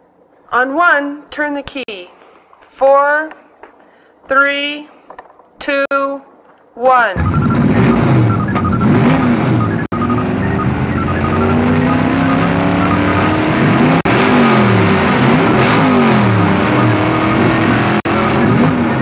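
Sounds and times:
engines revving hard: 7.2s - 19.0s.

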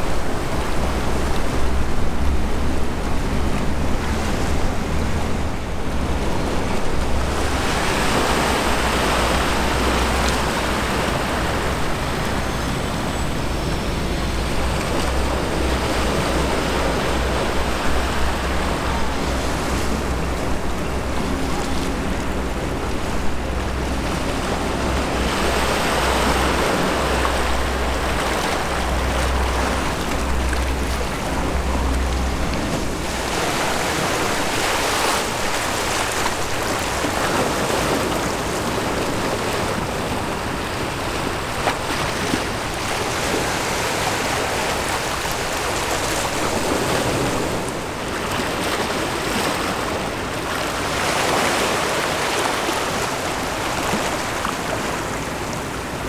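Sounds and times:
small waves washing ashore: 0.0s - 56.0s
wind rumble on microphone: 0.0s - 56.0s.

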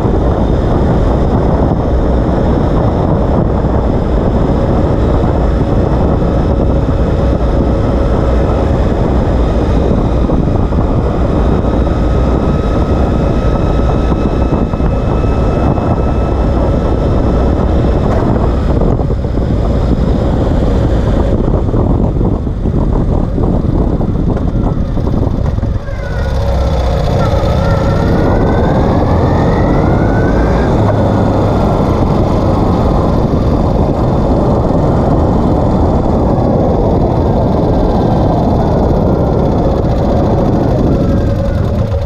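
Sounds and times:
motorcycle engine running: 0.0s - 42.0s
tyre and road rumble: 0.0s - 42.0s
wind buffeting microphone: 0.0s - 42.0s.

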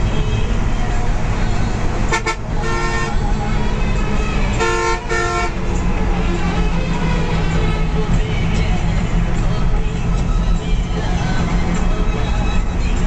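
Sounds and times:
bus engine drone and road noise: 0.0s - 13.0s
bus horn tooting: 2.0s - 5.9s.

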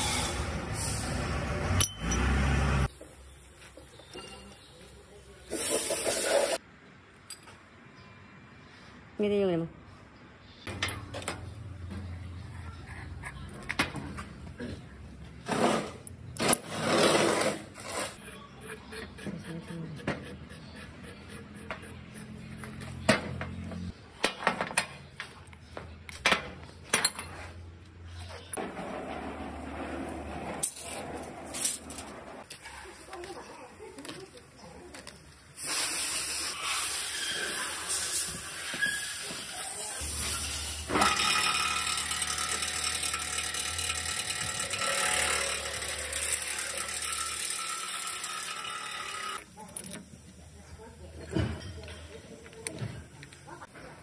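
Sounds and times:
rough scraping grind: 15.4s - 18.2s.

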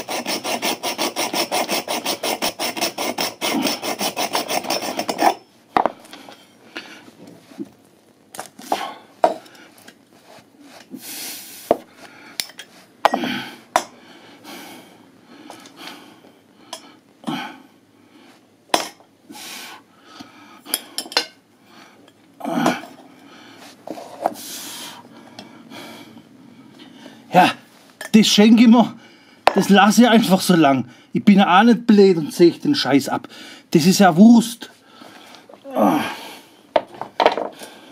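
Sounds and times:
metal tubes scraping: 0.0s - 5.4s.

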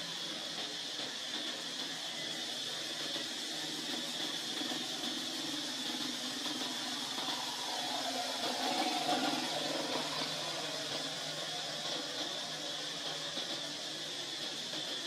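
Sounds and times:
steady ambient hiss: 0.0s - 15.0s.

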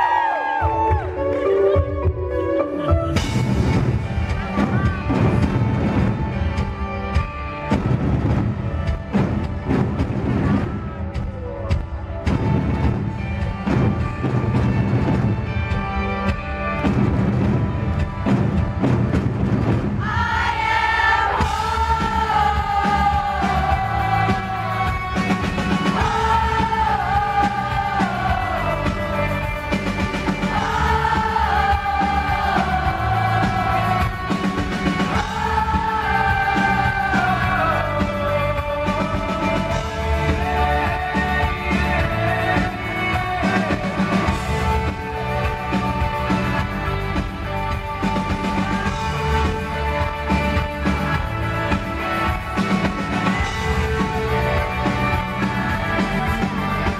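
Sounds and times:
live rock band: 0.0s - 56.9s
taiko drums: 3.0s - 15.8s, 16.8s - 56.9s
man singing: 35.1s - 44.9s.

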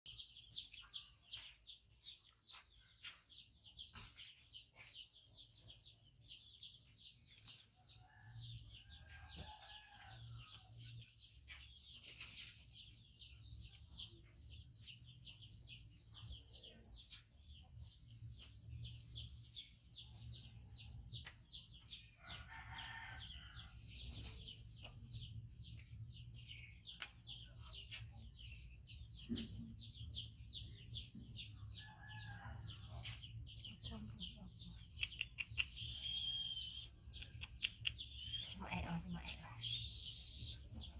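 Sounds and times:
distant rooster crowing: 8.1s - 10.5s, 22.2s - 23.7s, 31.7s - 32.9s
rapid high chirping: 35.0s - 38.6s, 39.6s - 40.8s.

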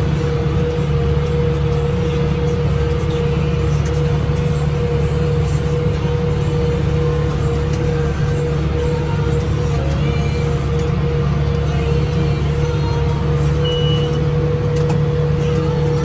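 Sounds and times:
constant engine whine: 0.0s - 16.0s
tractor engine drone: 0.0s - 16.0s.

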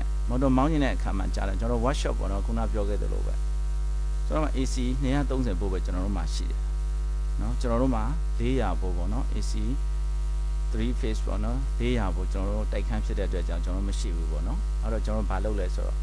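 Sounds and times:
man talking: 0.0s - 3.4s, 4.3s - 6.6s, 7.4s - 9.8s, 10.7s - 16.0s
mains hum: 0.0s - 16.0s.

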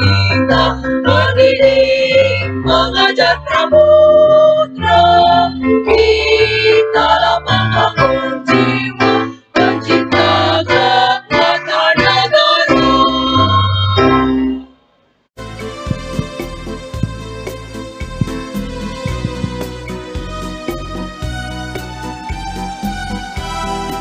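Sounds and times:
women's choir singing: 0.0s - 13.8s
low bass line: 15.4s - 23.8s.

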